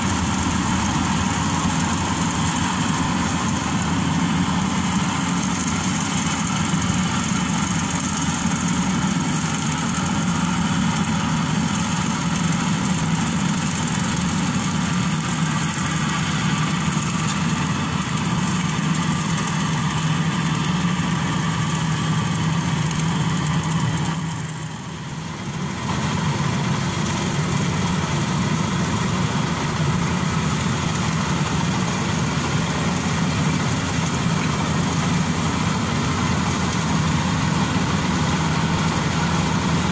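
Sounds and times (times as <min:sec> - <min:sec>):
combine harvester running: 0:00.0 - 0:39.9.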